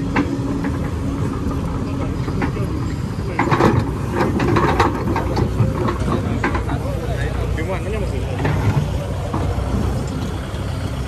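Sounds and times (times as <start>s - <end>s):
excavator diesel engine running: 0.0s - 11.0s
bucket clanking and scraping: 2.0s - 7.0s, 8.3s - 9.8s.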